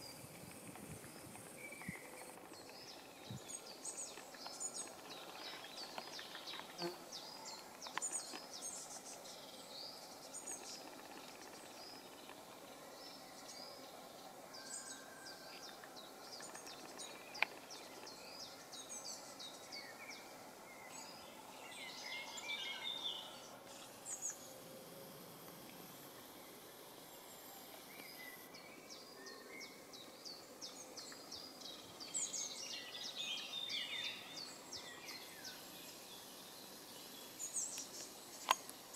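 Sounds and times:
steady outdoor hiss: 0.0s - 38.9s
small birds chirping: 25.8s - 38.9s.

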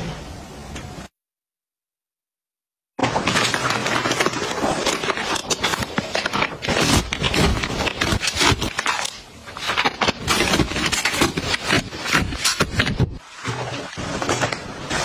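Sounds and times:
plastic packaging crinkling: 3.0s - 15.0s.

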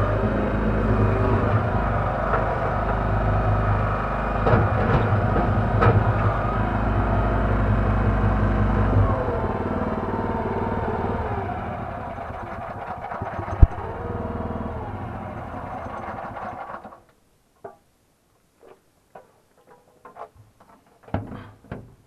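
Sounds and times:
backhoe engine running: 0.0s - 17.0s.

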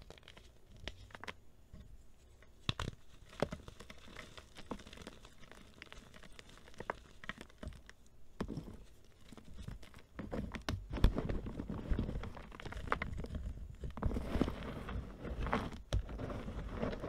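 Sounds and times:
hands crushing chalk: 2.4s - 17.0s.

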